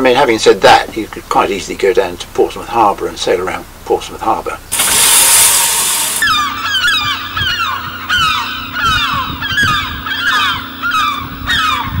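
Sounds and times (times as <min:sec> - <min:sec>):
flock of birds calling: 0:06.2 - 0:12.0.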